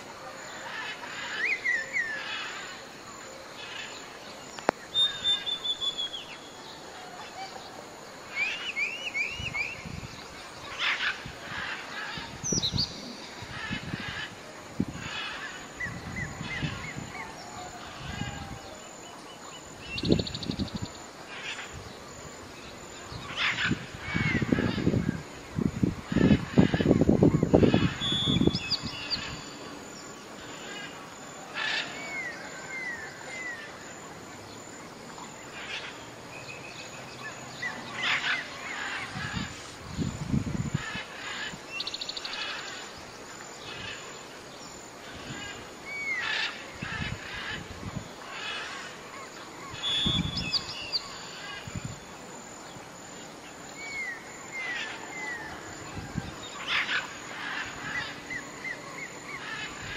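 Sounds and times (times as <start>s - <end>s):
low bird calls: 0.0s - 22.1s, 26.0s - 43.0s, 43.6s - 52.2s
birds chirping and trilling: 0.0s - 59.9s.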